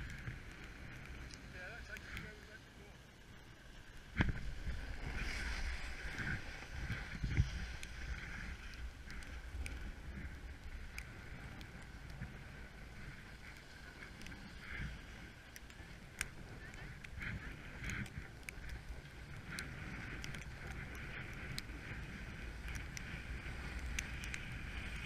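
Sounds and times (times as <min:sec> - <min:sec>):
wind rumble on camera: 0:00.0 - 0:25.0
snowboard scraping over snow: 0:04.1 - 0:25.0.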